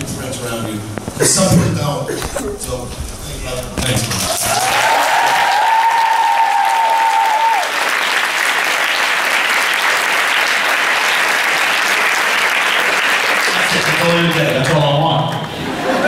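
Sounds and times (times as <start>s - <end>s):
large audience applauding: 4.0s - 16.0s.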